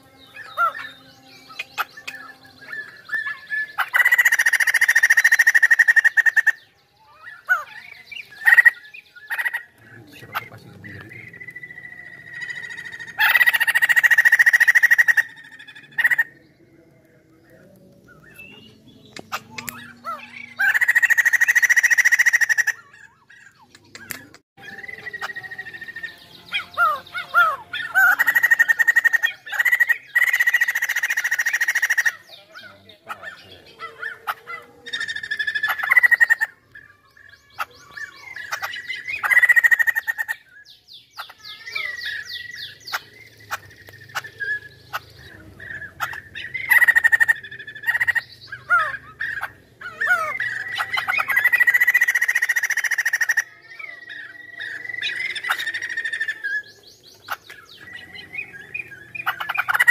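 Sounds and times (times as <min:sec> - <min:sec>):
bird whistled notes: 0:00.0 - 0:16.3, 0:23.9 - 0:32.0
bird harsh chattering: 0:00.4 - 0:16.4, 0:18.2 - 0:59.9.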